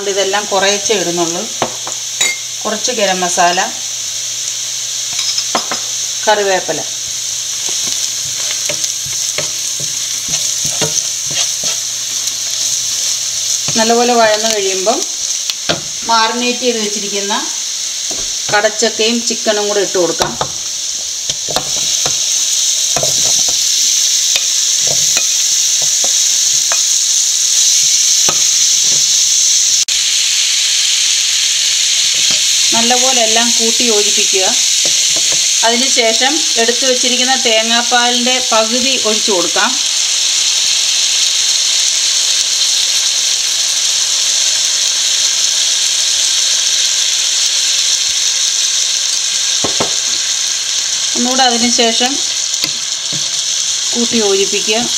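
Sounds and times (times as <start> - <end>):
food sizzling in hot oil: 0.0 - 54.9
wooden spatula clacking and scraping: 8.4 - 11.8.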